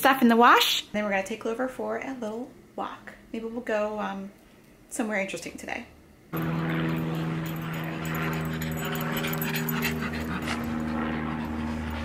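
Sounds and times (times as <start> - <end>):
low machine hum: 6.3 - 12.0
dog whining and panting: 6.9 - 12.0.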